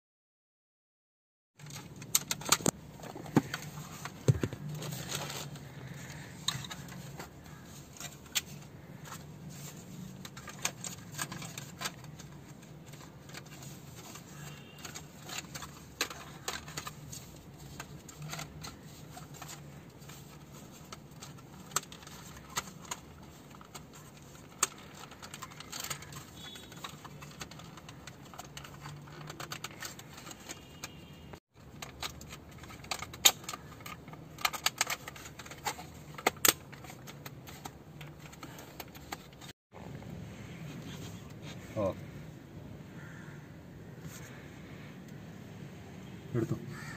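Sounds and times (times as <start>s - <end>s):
plastic parts clicking and rattling: 1.6s - 39.6s.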